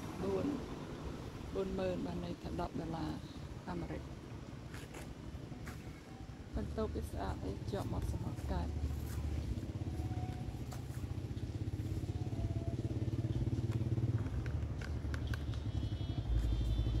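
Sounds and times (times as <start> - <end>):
vehicle engine running: 5.4 - 17.0.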